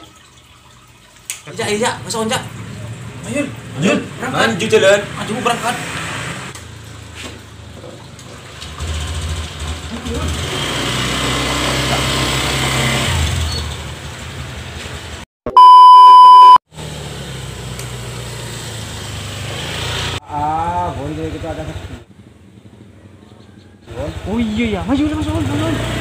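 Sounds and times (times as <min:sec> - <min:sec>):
motor scooter engine: 0:08.6 - 0:15.2, 0:21.0 - 0:26.0
electronic beep: 0:15.5 - 0:16.6.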